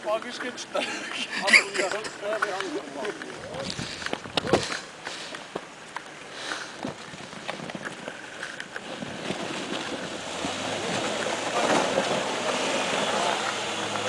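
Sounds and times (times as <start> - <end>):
car engine and tyres on snow: 0.0 - 14.0
wind on microphone: 3.3 - 4.8.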